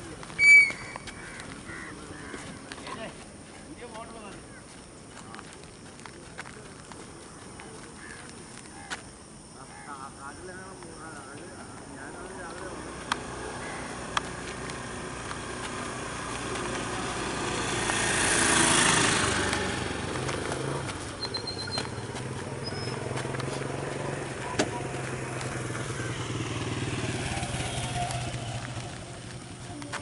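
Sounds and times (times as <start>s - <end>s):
motor vehicle passing: 11.9s - 30.0s
low engine hum: 12.2s - 30.0s.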